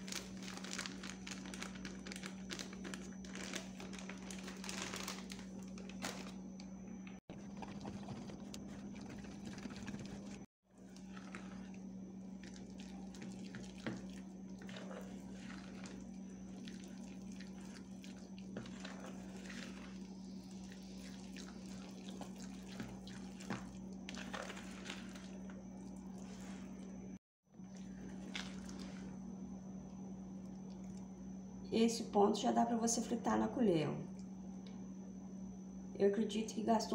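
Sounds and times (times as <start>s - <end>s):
steady low hum: 0.0s - 36.9s
spoon stirring thick batter: 7.3s - 27.0s.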